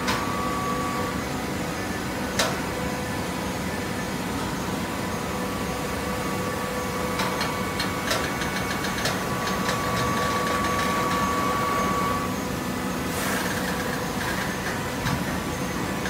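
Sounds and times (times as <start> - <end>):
machine hum: 0.0 - 16.0
machine whine: 0.0 - 16.0
hydraulic hiss: 13.1 - 13.6.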